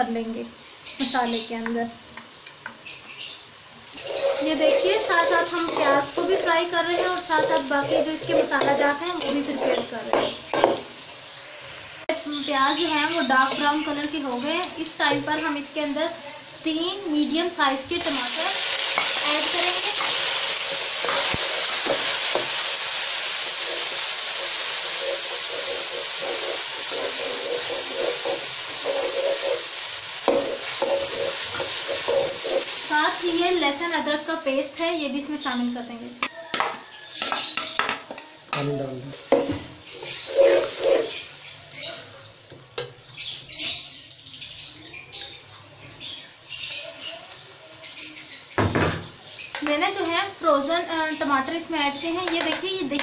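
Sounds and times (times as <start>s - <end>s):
food sizzling in oil: 0.0s - 53.0s
metal spatula scraping pot: 4.0s - 10.8s, 18.8s - 22.5s, 23.5s - 32.9s, 39.3s - 41.3s
spatula squeaks: 4.0s - 10.8s, 23.6s - 32.8s, 39.8s - 41.4s.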